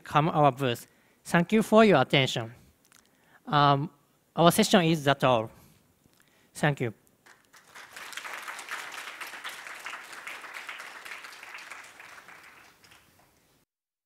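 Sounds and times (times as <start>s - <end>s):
audience applauding: 7.2s - 13.4s.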